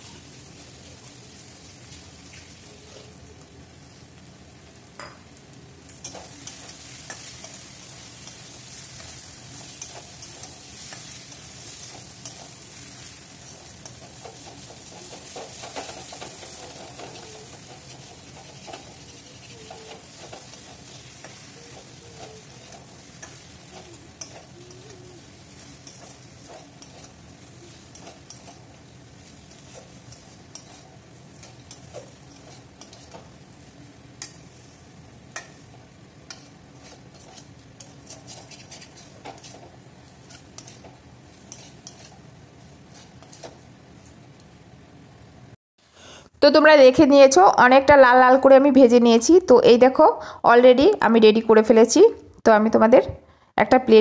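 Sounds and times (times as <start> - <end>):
curry sizzling in a pan: 0.0 - 49.4
spatula scraping metal pan: 6.0 - 33.4, 36.2 - 43.6.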